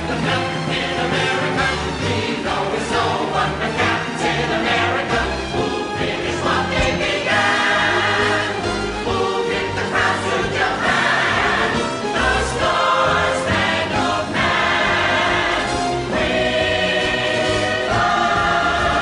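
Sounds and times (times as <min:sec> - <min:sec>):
chorus singing show tune: 0:00.0 - 0:19.0
orchestra accompaniment: 0:03.6 - 0:14.2.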